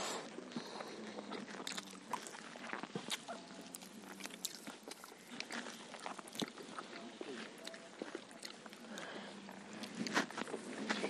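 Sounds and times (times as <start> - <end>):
chewing crunchy food: 0.0 - 11.0.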